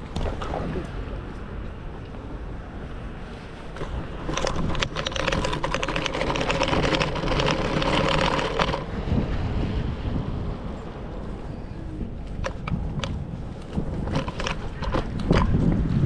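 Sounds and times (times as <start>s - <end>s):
scooter rattling and whining: 3.2s - 9.6s, 10.8s - 16.0s.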